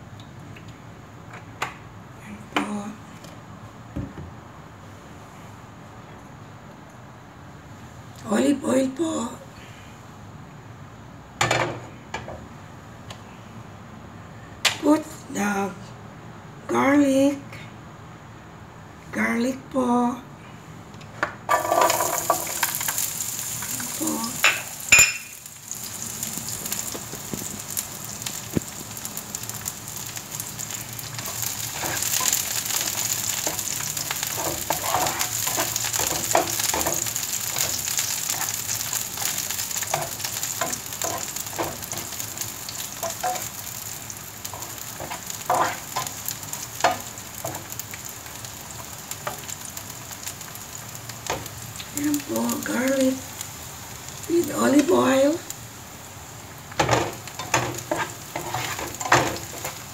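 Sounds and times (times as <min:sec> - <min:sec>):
garlic sizzling in oil: 0:21.5 - 0:59.9
spatula scraping a pan: 0:31.2 - 0:43.8, 0:44.5 - 0:47.8, 0:57.4 - 0:59.8.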